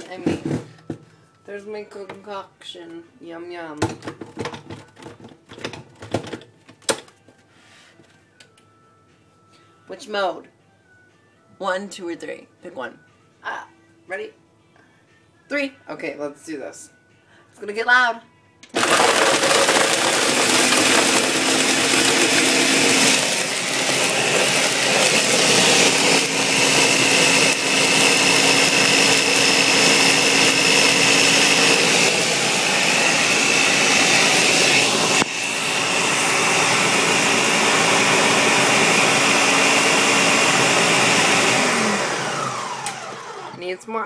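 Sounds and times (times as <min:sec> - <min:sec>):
blender running: 0:18.8 - 0:43.6.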